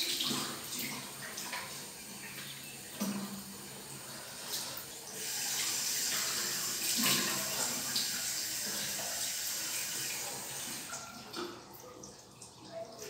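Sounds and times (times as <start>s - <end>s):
tap water running into sink: 0.0s - 13.0s.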